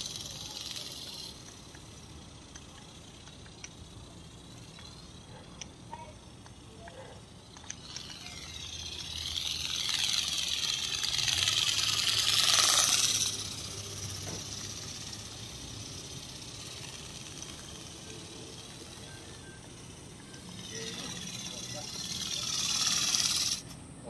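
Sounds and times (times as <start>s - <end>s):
vehicle passing by: 6.9s - 23.8s.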